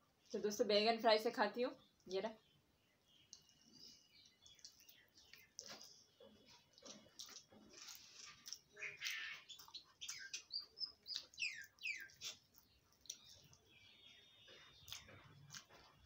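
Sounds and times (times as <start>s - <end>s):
small bird chirping: 1.8s - 16.0s
clicks of eating by hand: 3.2s - 13.7s, 14.4s - 16.0s.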